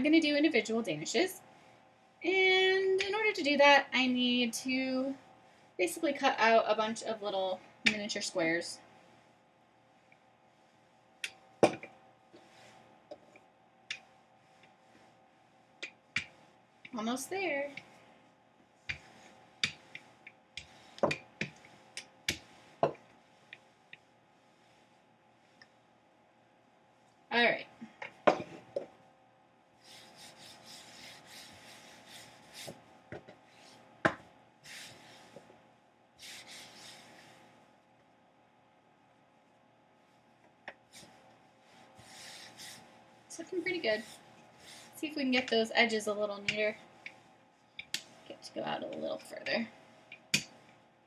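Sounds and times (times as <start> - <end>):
rolling pin rubbing over dough: 29.8 - 33.8, 36.2 - 37.4, 40.8 - 45.3.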